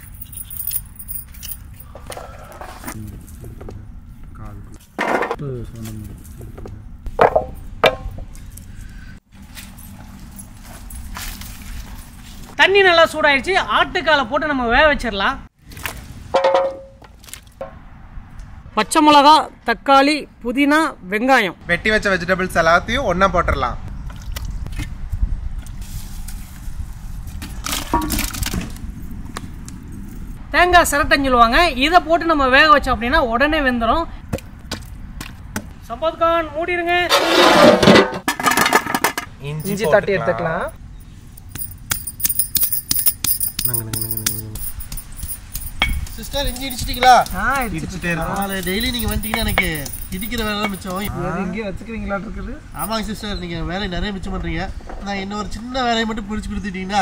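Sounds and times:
people talking: 2.9 - 4.8, 5.4 - 6.8, 39.4 - 40.7, 43.6 - 44.6, 46.2 - 57.0
utensils and dishes clinking: 41.5 - 51.1.

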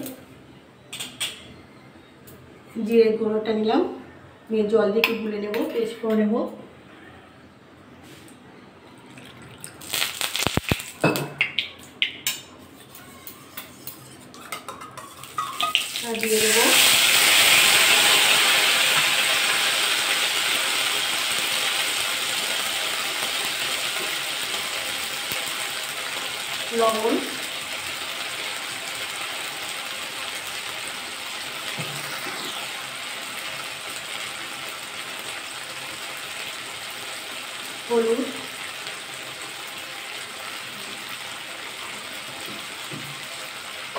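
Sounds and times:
spices sizzling in hot oil: 9.7 - 13.0, 13.6 - 43.9.

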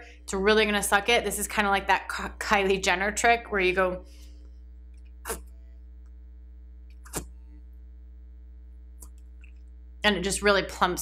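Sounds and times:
steady electrical hum: 0.0 - 11.0.

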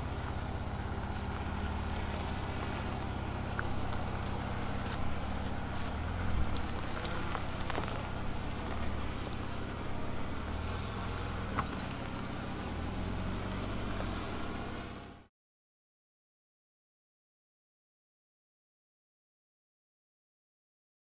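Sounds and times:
pickup engine at low revs: 0.0 - 15.3
stones knocking under tyres: 0.9 - 9.5.

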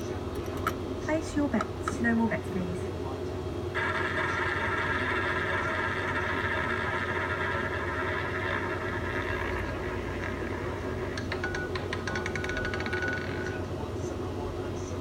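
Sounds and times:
low machine hum: 0.0 - 15.0
rolling ball whirr: 3.8 - 13.6.

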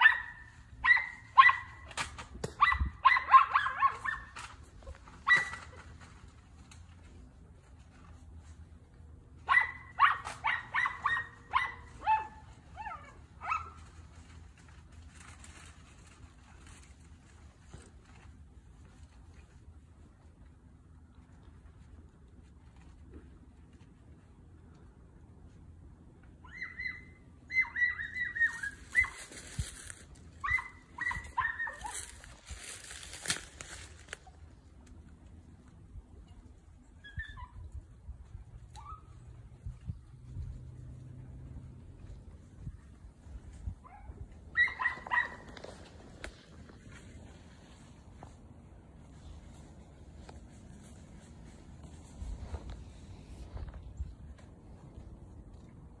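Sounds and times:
dog barking high: 0.0 - 4.5, 5.2 - 5.7, 9.4 - 13.8, 26.5 - 29.3, 30.4 - 32.2, 43.8 - 45.5
dry brush crackling: 0.0 - 20.3, 28.1 - 35.8, 42.0 - 55.0.

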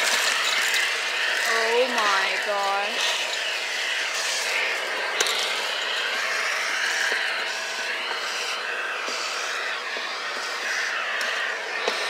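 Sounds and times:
vacuum cleaner running: 0.0 - 12.0.

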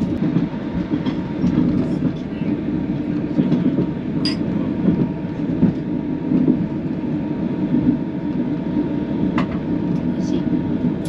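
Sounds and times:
train running rumble: 0.0 - 11.0.

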